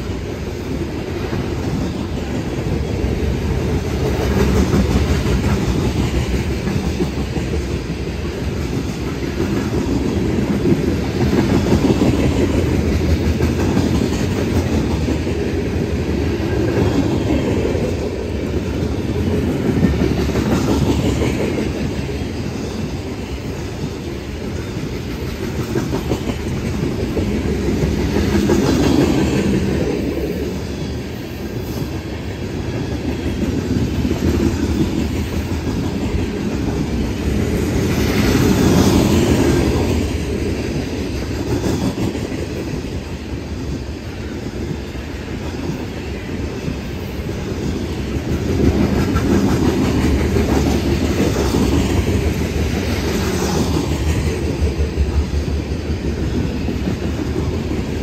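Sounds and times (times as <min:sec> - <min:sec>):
train wheels rumbling on rails: 0:00.0 - 0:58.0.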